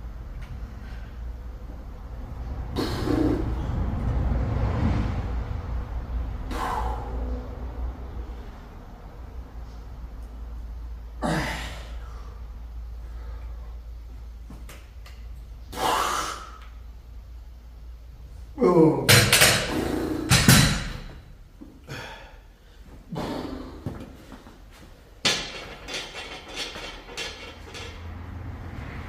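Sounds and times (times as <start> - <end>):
short noisy breaths: 2.7 - 4.0, 6.4 - 8.7
dumbbells clanking on floor: 19.1 - 21.2, 25.2 - 28.2.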